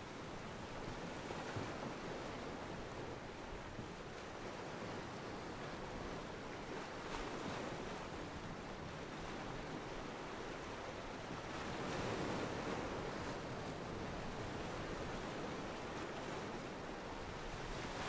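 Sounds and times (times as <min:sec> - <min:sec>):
ocean waves breaking: 0:11.7 - 0:18.0.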